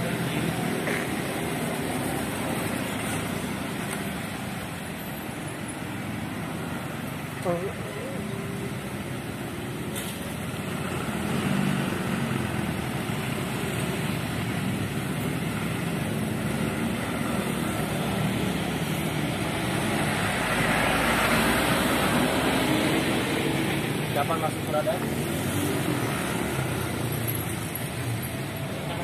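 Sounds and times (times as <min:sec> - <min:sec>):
traffic and engine noise: 0:00.0 - 0:29.0
truck passing close by: 0:19.3 - 0:24.1.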